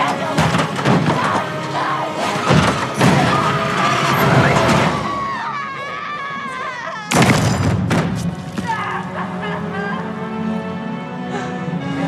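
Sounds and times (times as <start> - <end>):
dramatic orchestral score: 0.0 - 12.0
woman screaming: 5.0 - 7.3.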